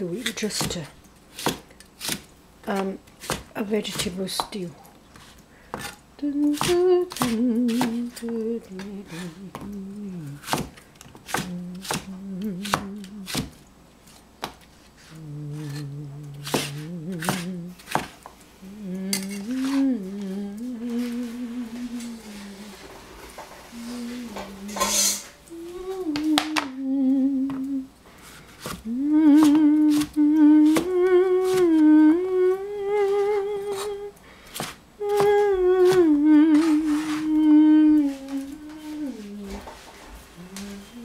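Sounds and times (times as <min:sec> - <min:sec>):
cleaver chopping on plastic board: 0:00.5 - 0:04.6
person humming a slow tune: 0:06.2 - 0:10.6, 0:11.3 - 0:13.6, 0:15.0 - 0:17.9, 0:18.6 - 0:28.0, 0:28.7 - 0:34.2, 0:35.0 - 0:41.0.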